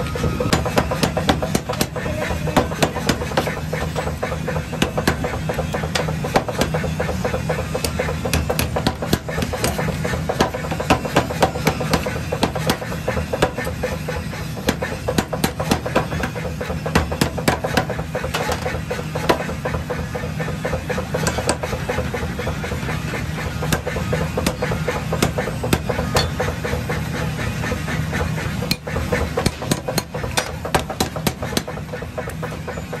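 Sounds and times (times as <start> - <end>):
power hammer pounding steel: 0.0 - 33.0.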